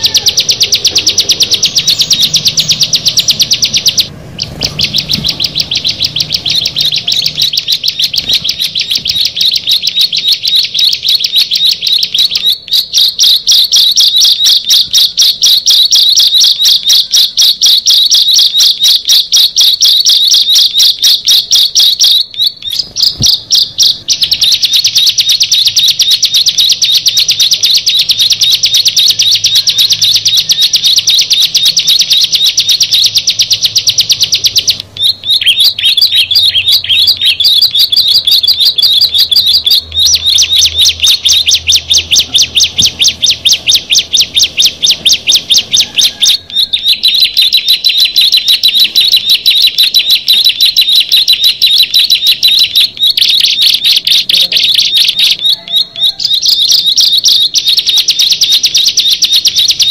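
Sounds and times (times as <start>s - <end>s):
songbirds chirping rapidly: 0.0s - 59.9s.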